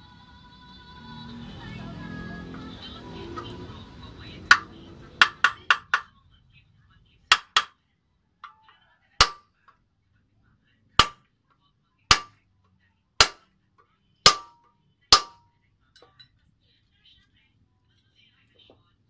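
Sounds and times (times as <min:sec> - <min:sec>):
hammer striking metal punch: 0:04.5 - 0:06.1, 0:07.3 - 0:07.7, 0:08.4 - 0:09.4, 0:11.0 - 0:11.2, 0:12.1 - 0:12.4, 0:13.2 - 0:13.5, 0:14.3 - 0:15.4.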